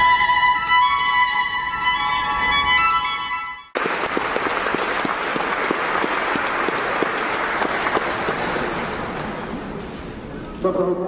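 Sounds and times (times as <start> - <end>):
audience applause: 3.8 - 9.5.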